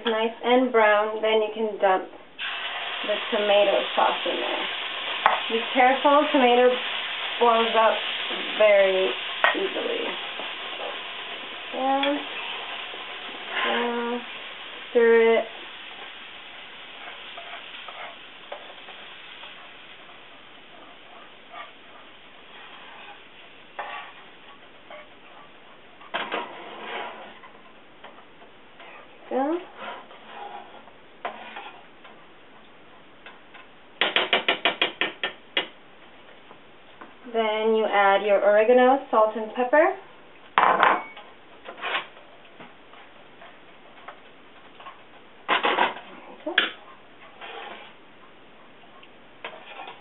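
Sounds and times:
low hiss of heating sauce: 0:02.3 - 0:33.1
spoon scraping a frying pan: 0:07.6 - 0:27.6, 0:28.8 - 0:31.9, 0:44.8 - 0:48.0, 0:49.4 - 0:50.0.

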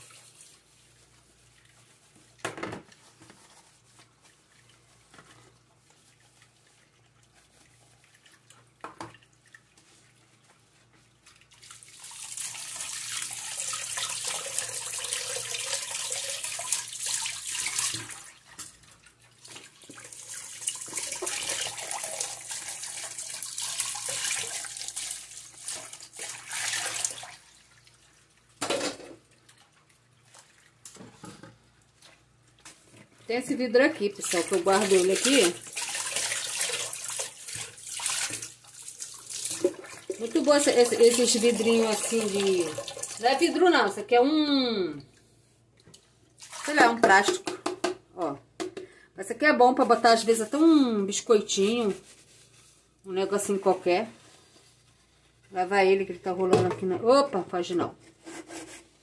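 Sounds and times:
water running into steel sink: 0:11.5 - 0:18.8, 0:19.4 - 0:29.6, 0:34.1 - 0:43.9.

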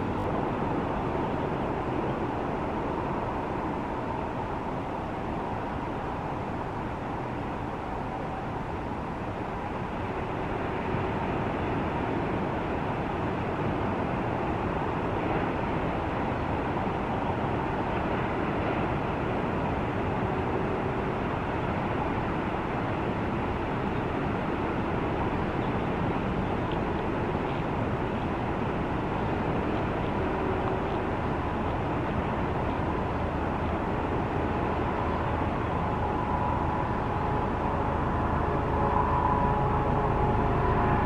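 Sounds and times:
rushing outdoor noise: 0:00.0 - 0:41.0
faint hum: 0:14.7 - 0:41.0.

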